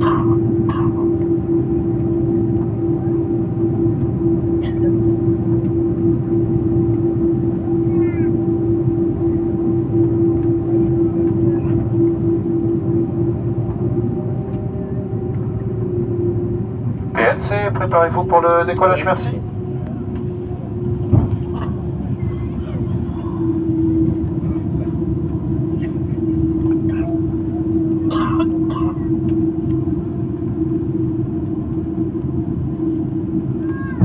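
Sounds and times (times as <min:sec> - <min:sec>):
aircraft cabin engine rush: 0:00.0 - 0:34.0
constant hum tone: 0:00.0 - 0:34.0.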